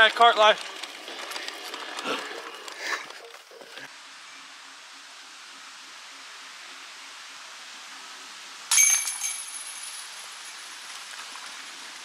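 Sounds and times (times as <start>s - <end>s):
disc striking metal basket clang: 8.7s - 10.0s.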